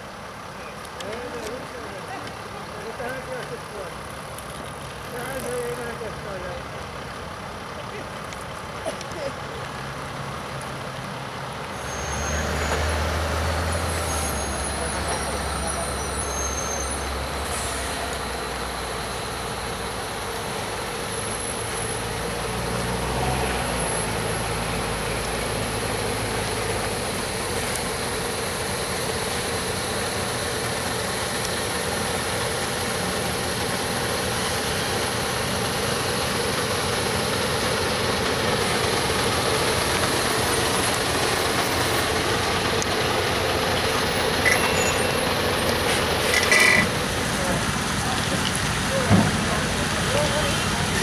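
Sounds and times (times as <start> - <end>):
trailer tyres rumbling: 0.0 - 51.0
truck diesel engine running: 0.0 - 51.0.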